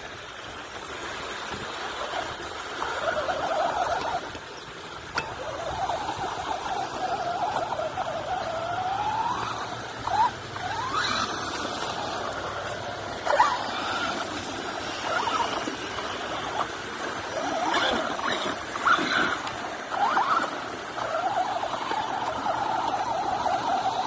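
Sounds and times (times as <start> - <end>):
electric motor whining: 5.2 - 24.0.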